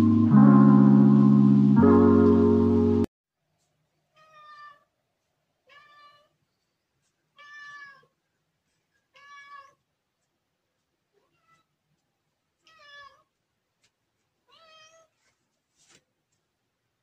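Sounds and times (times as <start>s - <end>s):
cat meowing: 4.1s - 4.9s, 5.6s - 6.3s, 7.4s - 8.2s, 9.1s - 9.8s, 11.2s - 11.7s, 12.6s - 13.3s, 14.5s - 15.1s.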